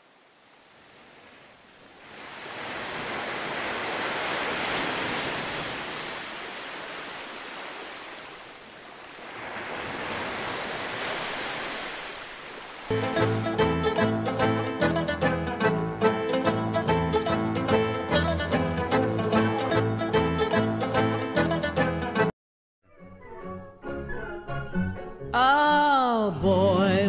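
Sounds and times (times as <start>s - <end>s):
surf washing over sand: 0.0s - 13.5s
plucked string music: 12.9s - 22.3s.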